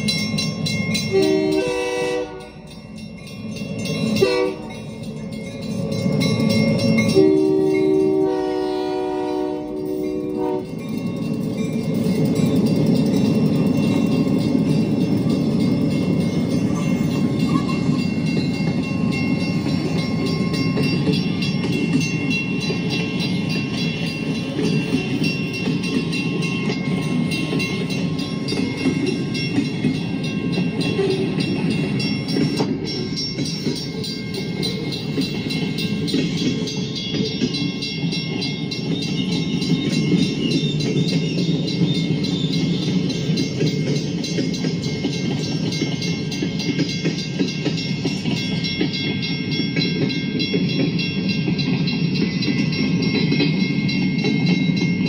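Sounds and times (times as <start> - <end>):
freight train passing: 0.0 - 55.0.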